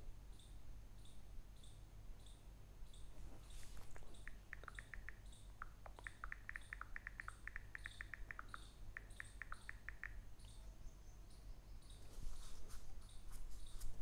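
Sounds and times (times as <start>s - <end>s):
high-pitched animal chirps: 4.0s - 10.2s.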